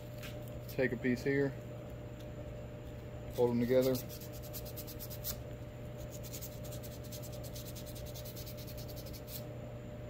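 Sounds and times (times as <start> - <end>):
sandpaper scratching: 3.6 - 5.4, 6.0 - 9.4.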